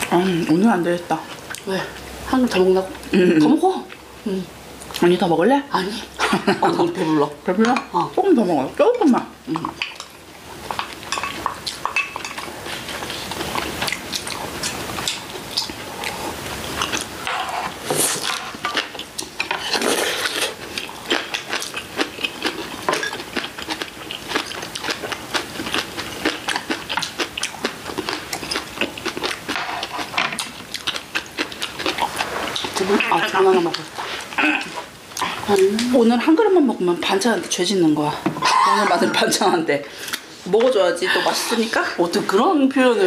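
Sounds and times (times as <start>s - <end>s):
chewing: 9.5s - 35.9s
slurping soup: 19.6s - 20.7s.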